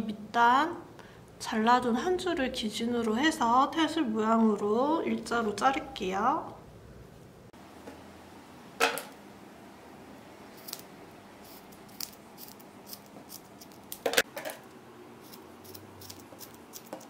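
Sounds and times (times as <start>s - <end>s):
scissors snipping cord: 15.3s - 17.0s.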